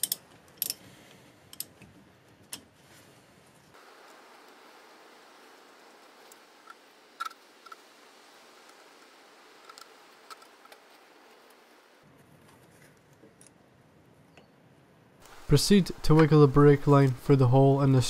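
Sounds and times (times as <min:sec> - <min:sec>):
low hiss: 0:02.5 - 0:12.1, 0:14.1 - 0:18.0.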